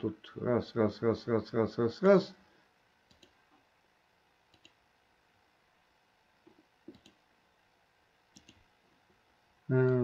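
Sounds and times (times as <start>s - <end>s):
computer mouse clicks: 3.1s - 3.4s, 4.5s - 4.8s, 6.4s - 7.2s, 8.3s - 8.7s.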